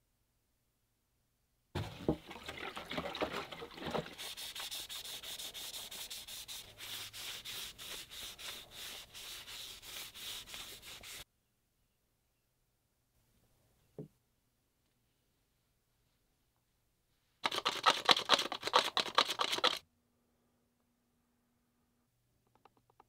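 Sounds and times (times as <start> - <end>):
cloth rag rubbing wood: 3.7 - 11.2.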